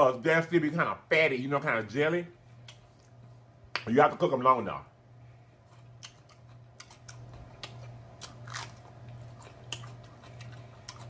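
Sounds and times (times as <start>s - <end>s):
person chewing crunchy food: 5.6s - 11.0s.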